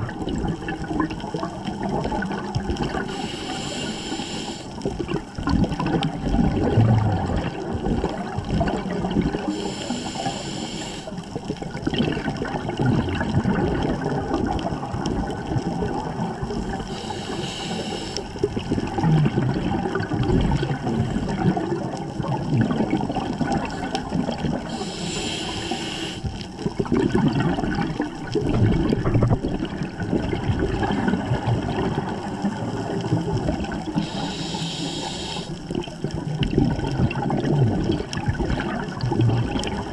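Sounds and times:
bubbling of exhaled air: 0.0s - 39.9s
regulator hiss on inhale: 3.0s - 4.8s, 9.4s - 11.3s, 16.6s - 18.4s, 23.7s - 26.6s, 34.0s - 35.7s.

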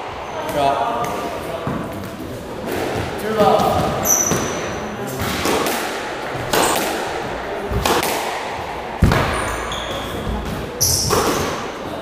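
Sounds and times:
squash ball cracking off rackets and walls: 0.5s - 12.0s
sneakers squeaking on wooden floor: 3.4s - 4.8s, 9.0s - 12.0s.

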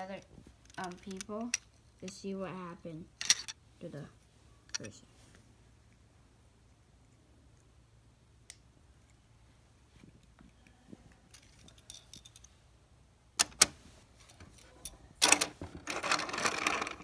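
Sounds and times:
plastic toys clattering: 0.0s - 2.2s, 3.2s - 3.6s, 11.3s - 12.5s, 14.4s - 17.0s
plastic toy pieces clicking: 0.7s - 1.7s, 3.2s - 3.5s, 15.2s - 17.0s.

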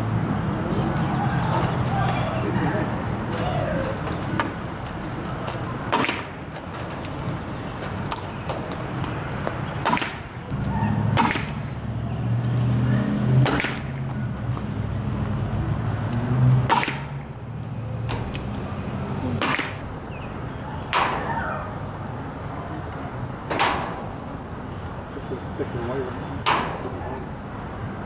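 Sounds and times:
staple gun shots: 5.9s - 6.4s, 9.8s - 10.3s, 11.2s - 11.6s, 13.4s - 13.9s, 16.7s - 17.1s, 19.4s - 19.8s, 23.5s - 24.0s, 26.4s - 26.8s.

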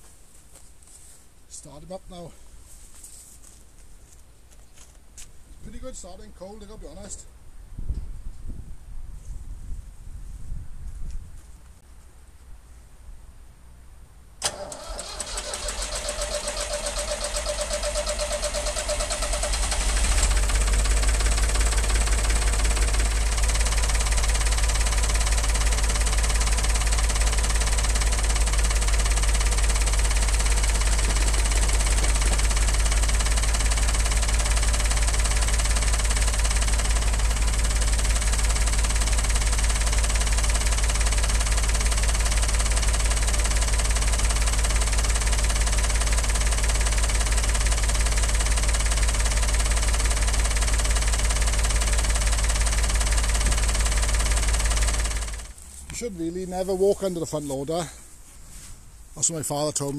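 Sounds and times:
diesel tractor engine starting: 14.4s - 58.2s.

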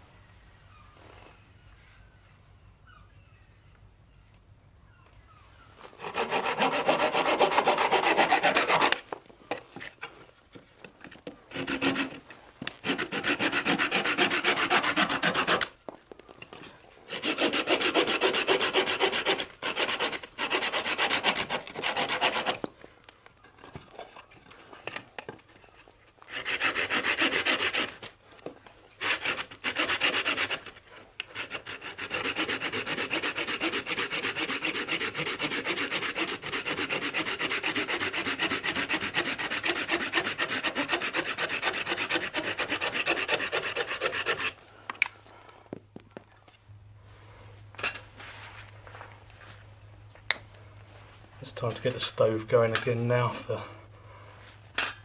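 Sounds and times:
pruning saw rasping through branches: 5.8s - 9.1s, 11.5s - 15.8s, 17.1s - 22.7s, 26.2s - 28.2s, 28.9s - 44.6s.

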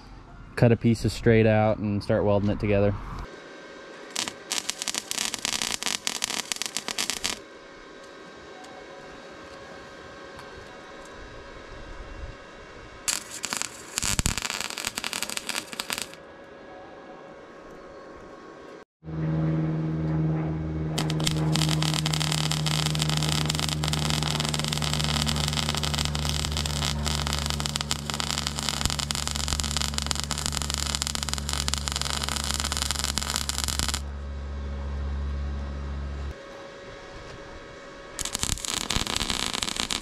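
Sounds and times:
welder buzzing hum: 3.3s - 16.3s, 19.1s - 34.3s, 37.2s - 40.0s
welding arc crackle: 4.1s - 7.4s, 13.1s - 16.2s, 21.0s - 34.0s, 38.2s - 40.0s.

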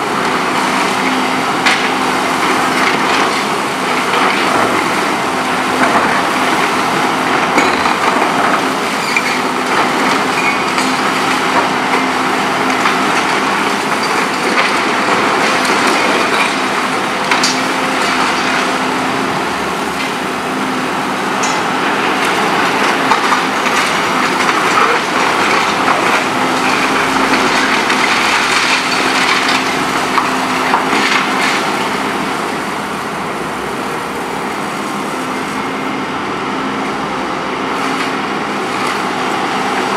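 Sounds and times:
excavator engine and hydraulics hum: 0.0s - 39.9s
concrete crunching and grinding: 21.5s - 32.1s.

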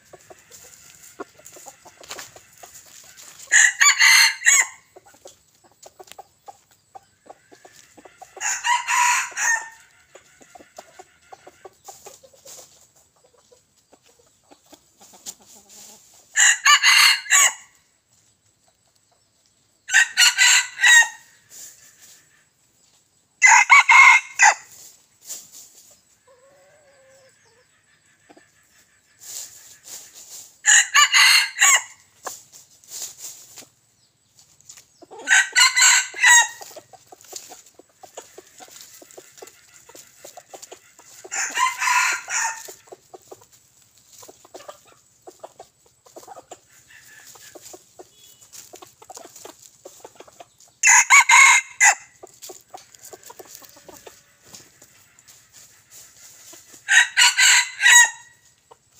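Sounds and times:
roosters crowing: 0.0s - 4.9s, 7.2s - 11.5s, 16.3s - 17.8s, 19.9s - 21.7s, 23.4s - 24.8s, 30.6s - 32.1s, 35.1s - 43.1s, 50.8s - 58.5s
rustling: 32.2s - 35.0s.

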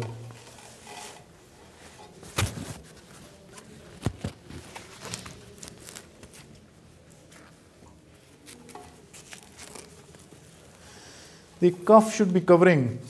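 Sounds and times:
rustling: 0.0s - 6.6s, 8.2s - 11.2s.

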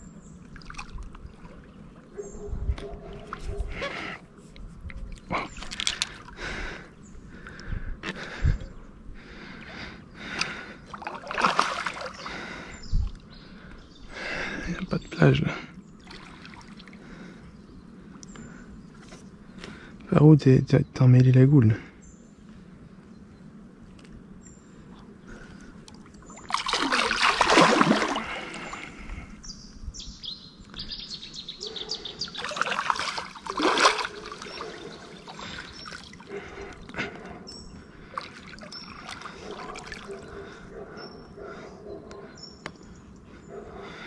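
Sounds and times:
birds chirping: 0.0s - 44.0s
fish splashing in water: 10.9s - 12.4s, 25.9s - 28.9s, 32.3s - 37.0s, 38.1s - 40.3s.

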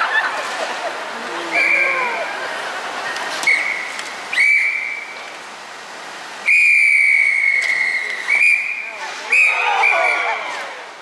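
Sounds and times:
high-pitched whistle blasts: 3.4s - 5.2s, 6.4s - 10.4s.

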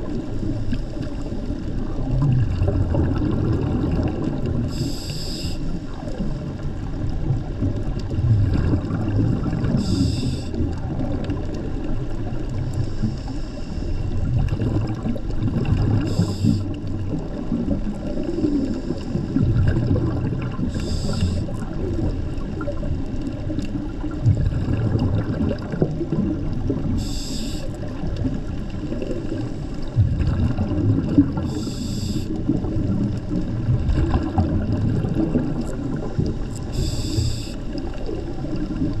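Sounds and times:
low underwater rumble: 0.0s - 39.0s
scuba regulator hiss: 4.7s - 5.8s, 9.8s - 10.6s, 16.0s - 16.8s, 20.7s - 21.5s, 27.0s - 27.8s, 31.5s - 32.4s, 36.7s - 37.7s.

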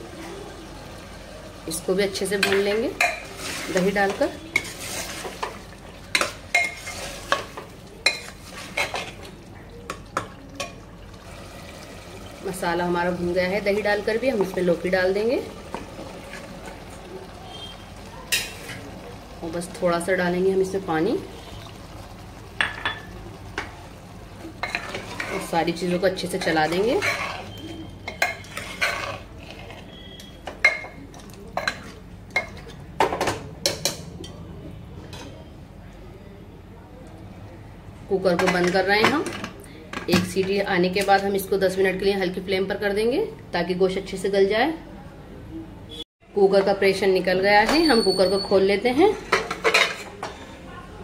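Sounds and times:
low sizzle: 0.0s - 44.9s
metal ladle scraping pot: 3.0s - 9.3s, 24.6s - 25.6s, 26.3s - 30.3s
ladle scraping and knocking pot: 24.6s - 25.5s, 26.4s - 29.8s.

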